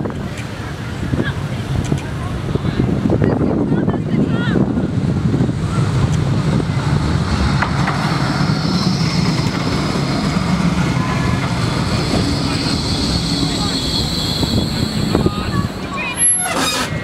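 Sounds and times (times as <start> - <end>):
tram wheels rumbling on rails: 0.0 - 17.0
high whine: 4.9 - 16.4.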